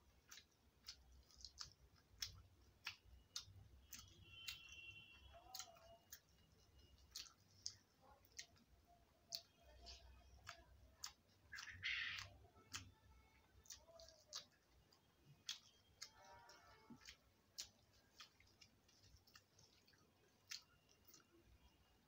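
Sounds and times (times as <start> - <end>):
chewing: 0.0 - 22.0.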